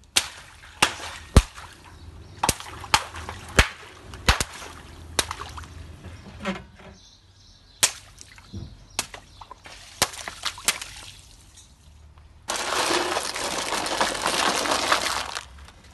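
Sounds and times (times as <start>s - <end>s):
water balloons popping: 0.0s - 5.8s, 8.9s - 11.2s, 12.4s - 15.6s
tyre crunching foil trays: 12.5s - 15.9s.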